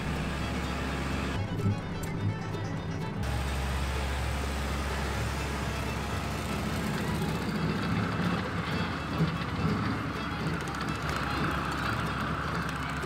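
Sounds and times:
rotary slasher cutting grass: 0.0s - 1.4s, 3.2s - 9.0s
tractor diesel engine running: 0.0s - 13.0s.

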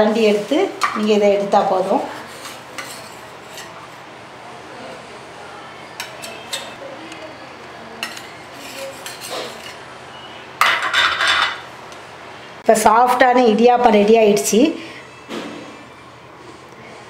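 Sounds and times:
metal spoon scraping steel plate: 2.1s - 3.8s, 6.0s - 6.8s, 8.0s - 9.8s, 10.6s - 11.6s.

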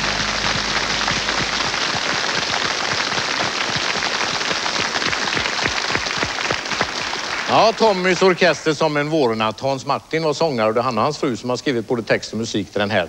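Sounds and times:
band chord: 0.0s - 2.5s
audience applauding: 0.0s - 8.8s.

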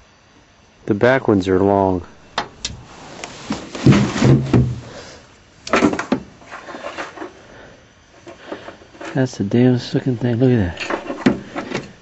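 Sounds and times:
low muffled bursts: 0.8s - 5.6s
rustling: 2.0s - 9.3s, 10.2s - 12.0s.

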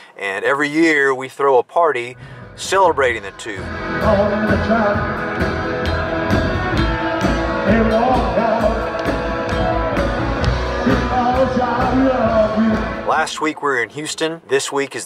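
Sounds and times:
rock and roll band playing: 2.5s - 13.4s
drums steady beat: 3.5s - 13.3s
person singing: 3.6s - 5.4s, 7.4s - 13.1s.

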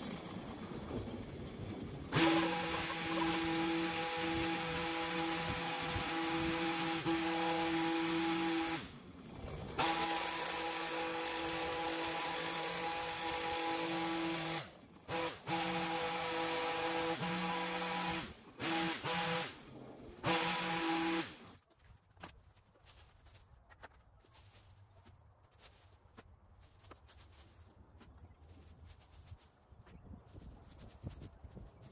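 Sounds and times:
hedge trimmer running: 0.0s - 21.6s.

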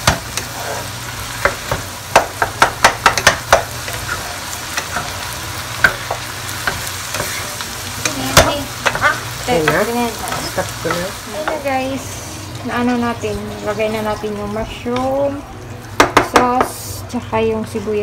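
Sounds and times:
spatula knocking and scraping pot: 0.0s - 5.2s, 5.8s - 11.7s
meat sizzling in a pot: 0.0s - 18.0s.

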